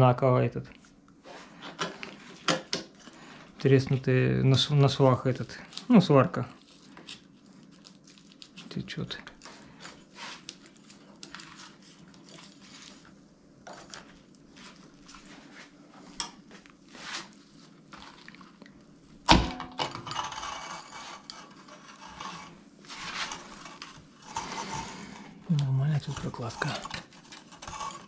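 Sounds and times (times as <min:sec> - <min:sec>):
scraping and rubbing: 0:16.8 - 0:18.2, 0:19.9 - 0:28.0.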